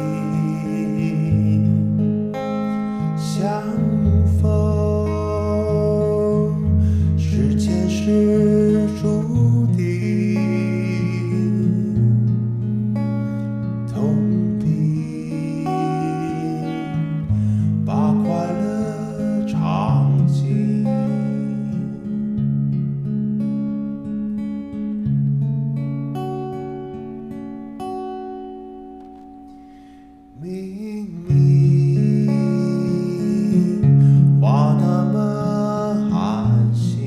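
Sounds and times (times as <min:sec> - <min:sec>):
man singing: 0:00.0 - 0:12.5, 0:13.8 - 0:22.3, 0:30.3 - 0:37.0
acoustic guitar: 0:00.0 - 0:37.0.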